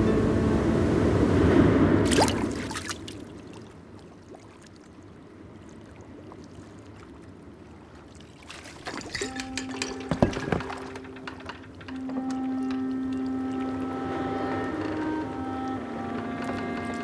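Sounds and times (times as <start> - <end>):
fishing float splashing on water: 2.0 - 5.0, 8.0 - 13.9
soft water lapping: 2.0 - 17.0
liquid sloshing in bottle: 8.4 - 11.6.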